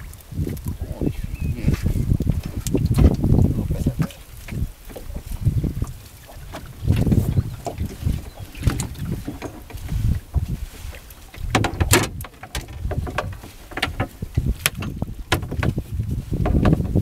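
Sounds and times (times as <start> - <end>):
low wind rumble: 0.0 - 17.0
net hauled aboard clicking: 2.1 - 17.0.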